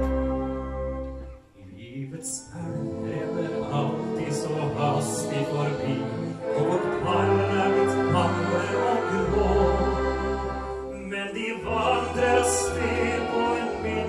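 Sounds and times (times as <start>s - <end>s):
orchestra playing: 0.0s - 14.0s
man singing: 1.6s - 10.1s, 10.9s - 14.0s.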